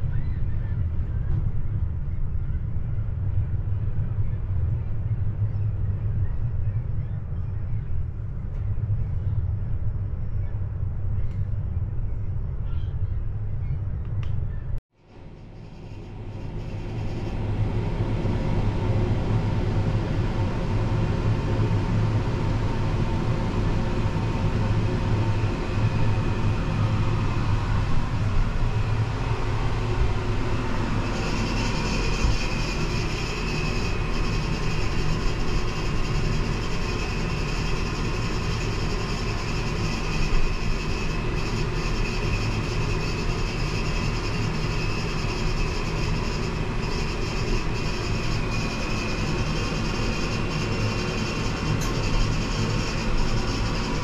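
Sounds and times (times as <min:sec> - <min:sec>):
mechanical rumble and hum: 0:00.0 - 0:54.0.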